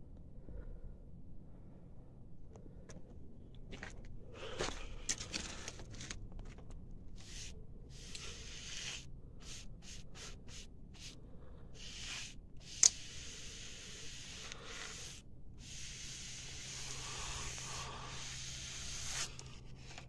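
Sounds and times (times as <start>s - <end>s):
paintbrush bristles scraping wall: 7.1s - 11.2s, 11.8s - 20.0s.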